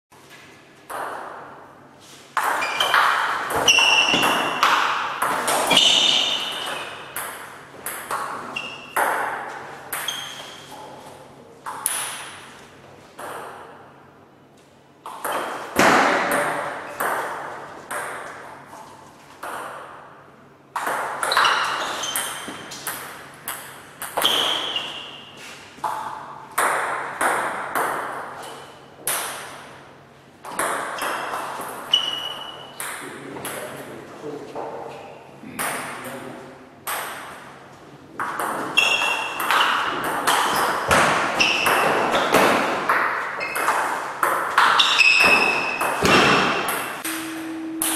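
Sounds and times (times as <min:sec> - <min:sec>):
table tennis ball hitting paddles: 0:00.8 - 0:01.6, 0:02.3 - 0:10.9, 0:11.6 - 0:12.5, 0:15.0 - 0:18.8, 0:20.7 - 0:25.1, 0:25.8 - 0:29.8, 0:30.4 - 0:33.7, 0:38.2 - 0:47.1
ball bouncing on table: 0:02.4 - 0:10.5.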